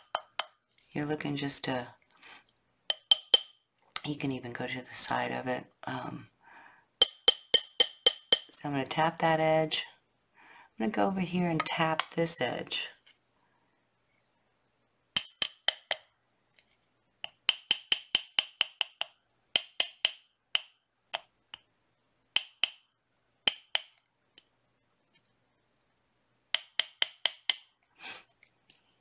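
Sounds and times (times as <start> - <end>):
small hammer tapping metal: 0.0 - 0.6, 2.9 - 3.6, 7.0 - 8.5, 15.2 - 16.1, 17.2 - 21.7, 22.4 - 22.8, 23.5 - 24.0, 26.5 - 27.7.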